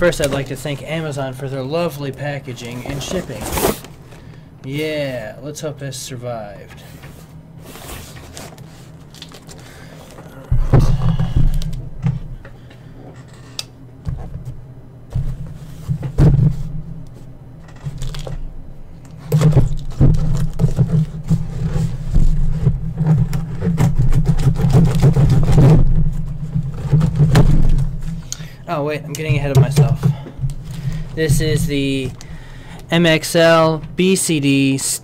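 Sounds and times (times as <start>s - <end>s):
scraping and knocks on cardboard: 19.3s - 28.2s.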